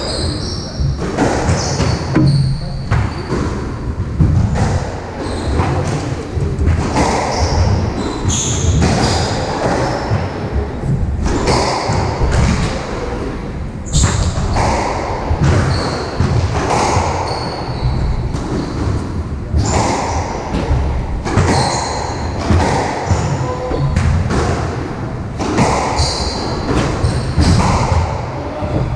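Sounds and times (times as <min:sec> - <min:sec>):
shoes squeaking on wooden floor: 0:00.1 - 0:04.3
squash ball hits: 0:00.9 - 0:10.0, 0:19.5 - 0:28.2.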